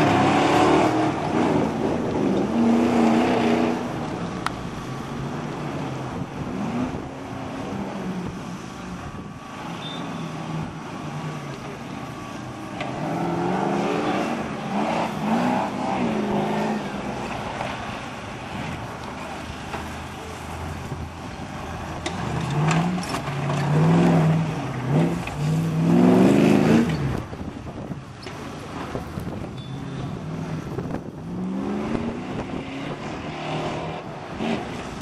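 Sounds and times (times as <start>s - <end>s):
engine revving hard: 0.0s - 3.9s, 22.2s - 27.1s.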